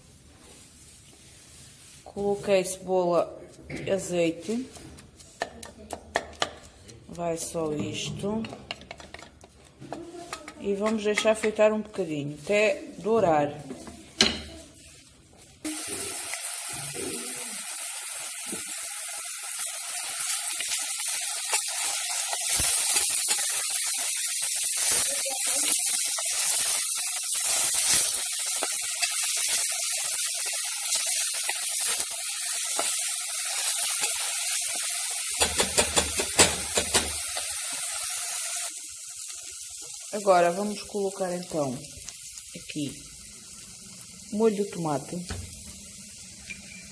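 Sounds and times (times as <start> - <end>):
onion sizzling in oil: 0.0 - 46.9
wooden spoon knocking on pot: 5.4 - 6.7, 10.7 - 11.7.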